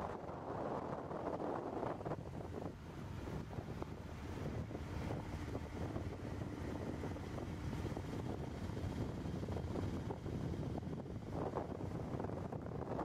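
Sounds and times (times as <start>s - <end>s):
engine and tyre rumble: 0.0s - 13.0s
wind buffeting microphone: 0.0s - 13.0s.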